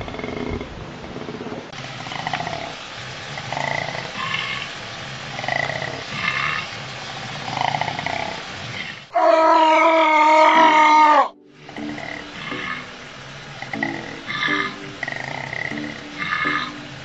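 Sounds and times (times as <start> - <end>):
koala bellowing: 3.4 - 4.8, 7.4 - 17.0.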